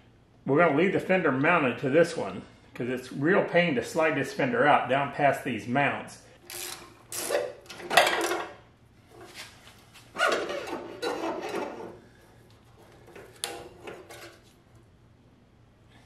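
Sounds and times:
metal scraping and rubbing: 9.1 - 14.8.

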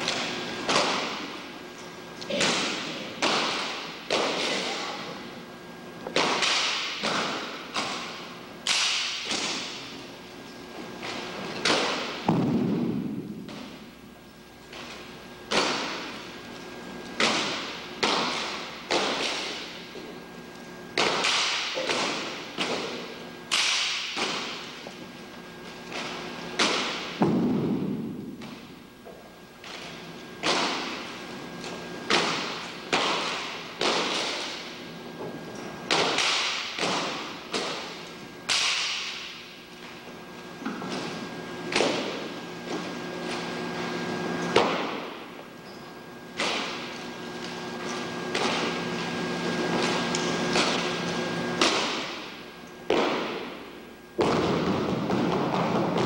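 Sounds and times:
rifle slaps echoing in a hall: 0.0 - 56.0.

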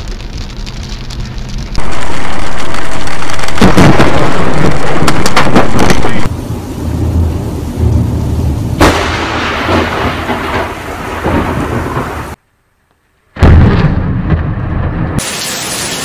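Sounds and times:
heavy rain: 0.0 - 12.4, 15.2 - 16.0
sharp thunder crack: 1.8 - 6.3, 8.7 - 12.4, 13.4 - 15.3
rumbling thunder: 1.8 - 12.4, 13.4 - 15.2.

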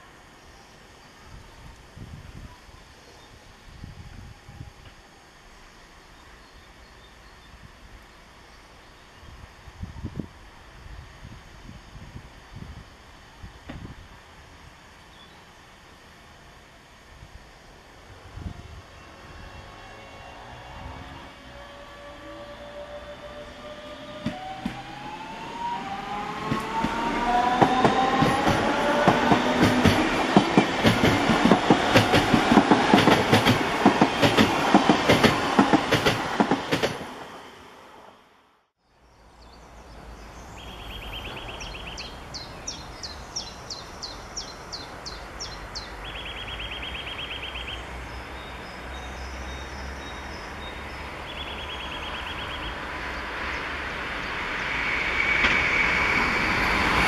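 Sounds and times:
distant train rumble: 0.0 - 38.4, 39.0 - 57.0
electric train motors whining: 9.2 - 38.4
train wheels clattering over rail joints: 26.4 - 37.1.

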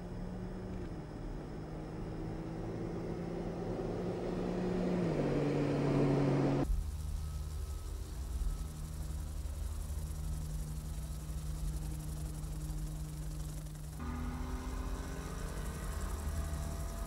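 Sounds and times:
car engine passing at speed: 1.5 - 6.7, 14.0 - 17.0.

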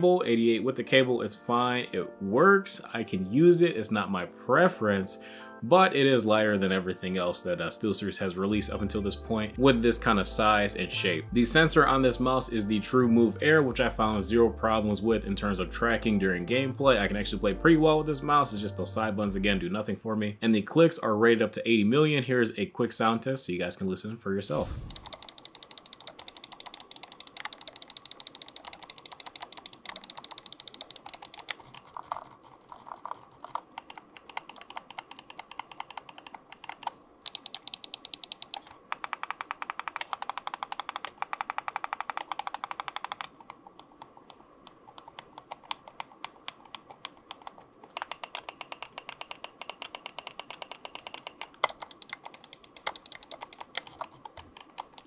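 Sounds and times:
mouse buttons clicking: 24.7 - 32.3, 32.9 - 55.0.

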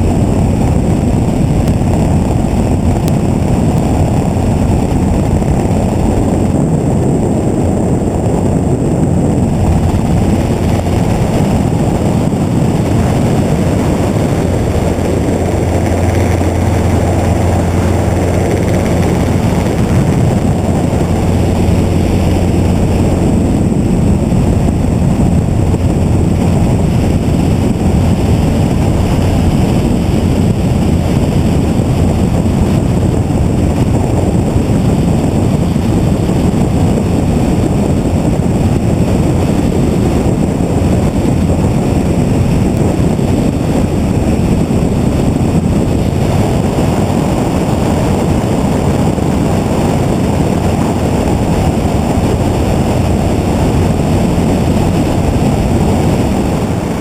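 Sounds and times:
helicopter rotor and engine: 0.0 - 57.0.

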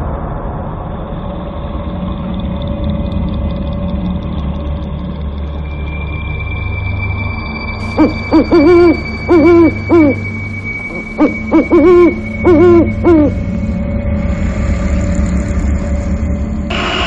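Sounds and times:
low eerie drone: 0.0 - 17.0
faint high whine: 4.4 - 17.0
owl hooting: 7.8 - 13.6.

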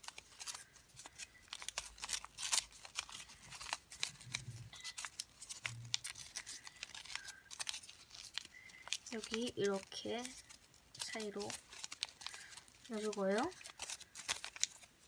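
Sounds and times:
paper rustling and crinkling: 0.0 - 15.0.

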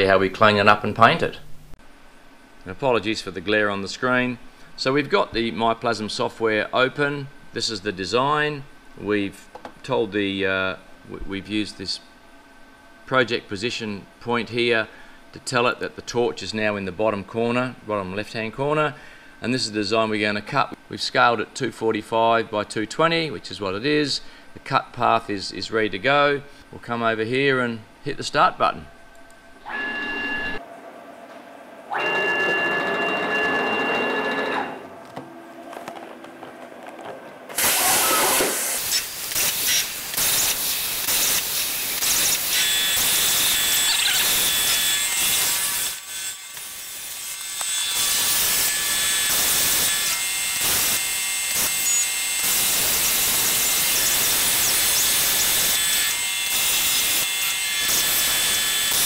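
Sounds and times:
plasma arc cutting metal hiss: 37.6 - 46.0, 50.6 - 59.0.

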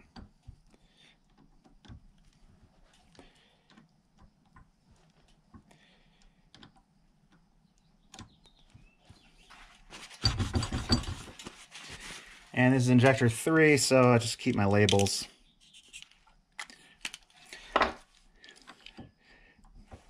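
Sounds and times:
rustling clatter: 9.4 - 12.5.

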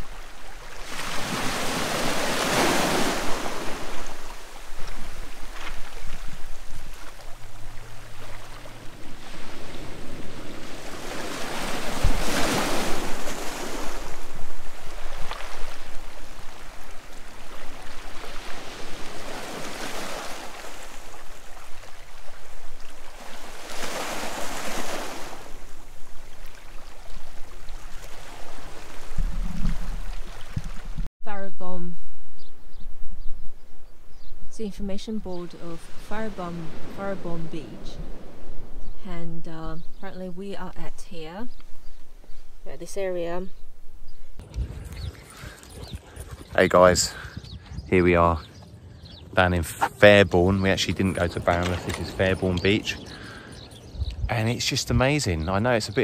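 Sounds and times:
sea waves breaking on shore: 0.0 - 31.1, 35.4 - 39.2, 50.0 - 53.9
wind rumbling on microphone: 0.0 - 31.1, 31.7 - 55.2.

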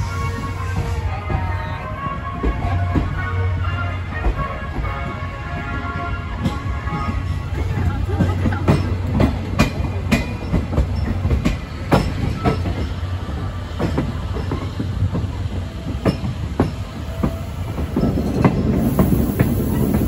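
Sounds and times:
train low rumble: 0.0 - 20.0
train wheels clicking over rail joints: 6.4 - 20.0.

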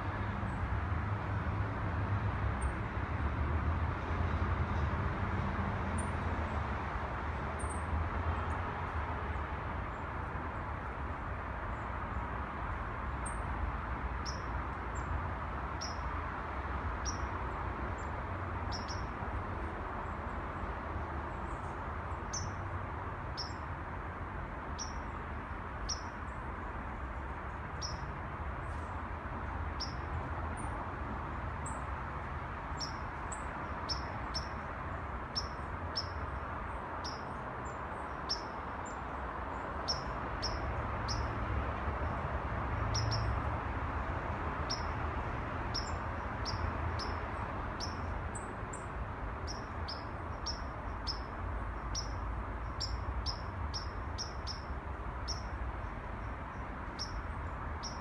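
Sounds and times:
distant city traffic hum: 0.0 - 58.0
small birds chirping: 14.2 - 15.1, 15.8 - 16.0, 17.0 - 17.3, 18.7 - 19.1, 21.5 - 22.6, 24.8 - 25.1, 25.8 - 26.4, 27.7 - 28.9, 29.7 - 30.8, 32.7 - 41.3, 42.9 - 43.4, 44.6 - 45.0, 45.7 - 58.0.

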